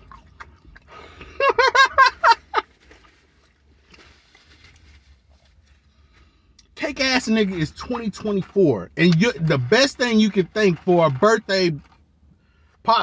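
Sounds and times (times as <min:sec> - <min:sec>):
man cackling laugh: 0:01.2 - 0:02.7.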